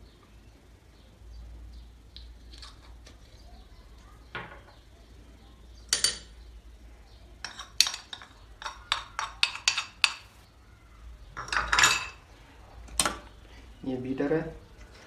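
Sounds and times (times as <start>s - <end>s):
metal spoon clinking on ceramic bowl: 5.9s - 6.3s, 7.4s - 10.3s, 11.4s - 12.2s.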